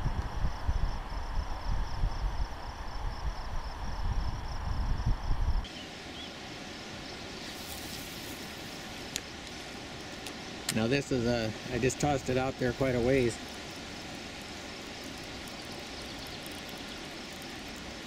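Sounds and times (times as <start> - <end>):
wind buffeting microphone: 0.0 - 5.7
insects trilling: 0.0 - 18.0
outdoor hiss: 1.1 - 18.0.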